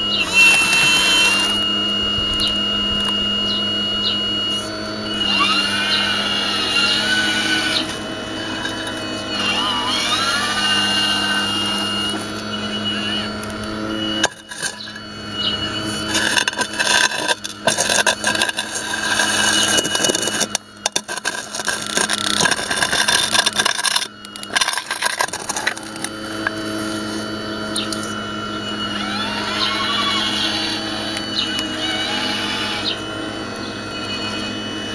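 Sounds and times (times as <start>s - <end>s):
model excavator motor whine: 0.0s - 34.9s
bucket scraping through concrete: 14.2s - 15.0s, 15.8s - 26.1s.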